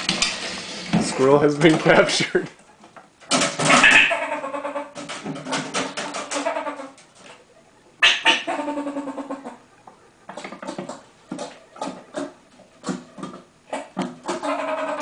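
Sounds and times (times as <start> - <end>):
irregular knocks and rattles: 2.9 - 4.1, 4.9 - 6.4, 10.3 - 14.4.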